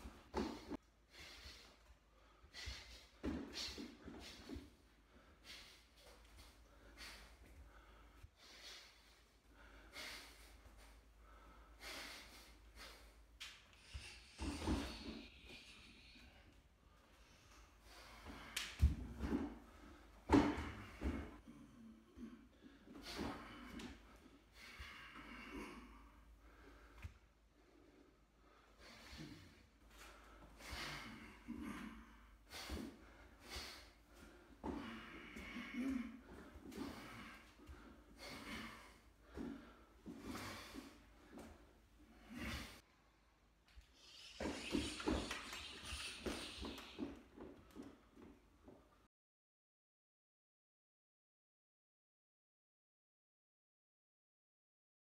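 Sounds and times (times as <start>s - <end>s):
man's sharp breaths: 0.2s - 21.5s, 22.5s - 42.9s
man breathing out sharply: 28.7s - 41.0s.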